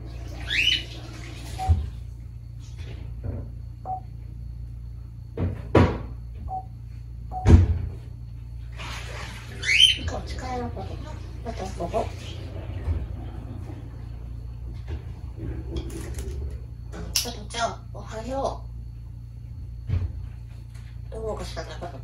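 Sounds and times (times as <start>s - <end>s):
parrot whistling: 0.4s - 0.9s, 9.6s - 10.1s.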